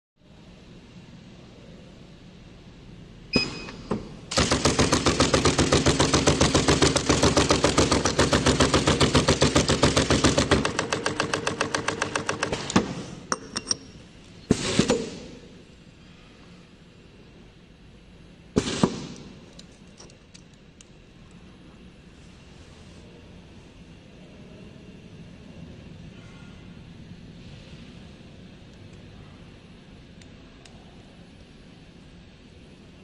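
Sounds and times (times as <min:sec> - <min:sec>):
machine clacking: 0:04.3 - 0:12.9.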